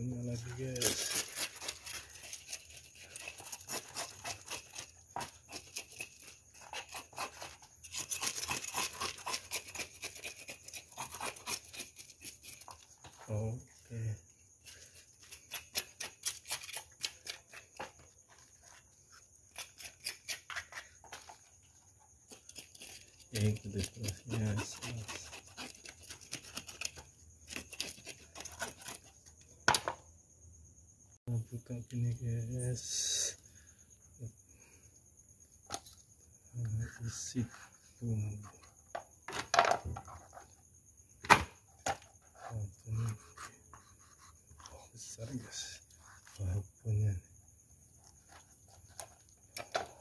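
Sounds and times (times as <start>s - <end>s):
knife scraping fish scales: 0.3s - 13.3s, 14.6s - 29.2s, 36.9s - 39.1s, 42.0s - 46.4s, 48.0s - 50.0s.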